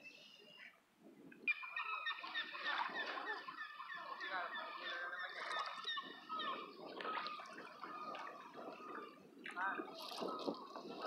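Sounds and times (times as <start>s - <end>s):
flock of birds calling: 1.5s - 9.2s.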